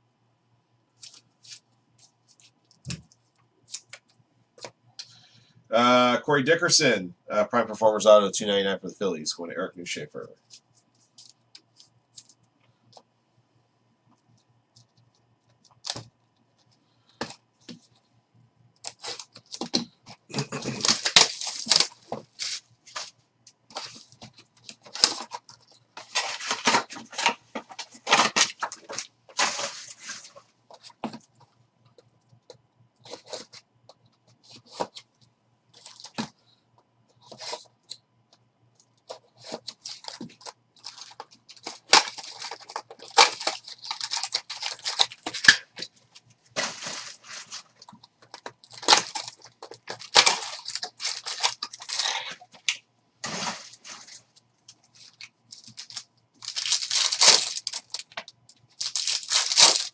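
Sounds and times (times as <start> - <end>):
plastic wrap crinkling and tearing: 18.8 - 23.1, 23.7 - 31.0, 39.1 - 45.9, 46.6 - 54.3, 55.0 - 59.9.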